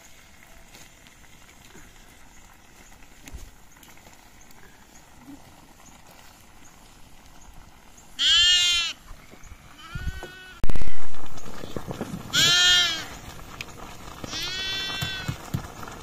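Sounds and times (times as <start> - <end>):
sheep bleating: 8.2 - 9.0, 9.7 - 10.6, 12.3 - 13.2, 14.3 - 15.4.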